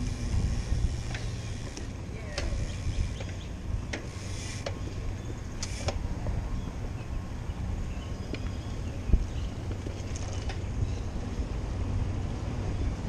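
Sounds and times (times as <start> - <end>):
bicycle tyres rolling on pavement: 0.0 - 13.0
wind rumble on microphone: 0.0 - 13.0
sharp clicks and rattles: 9.7 - 10.7.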